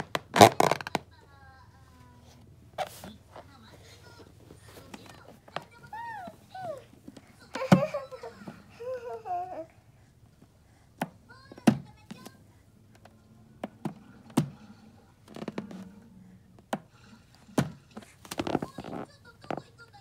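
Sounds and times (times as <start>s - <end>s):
hands tapping rubber balloon: 11.0s - 12.3s, 16.6s - 19.6s.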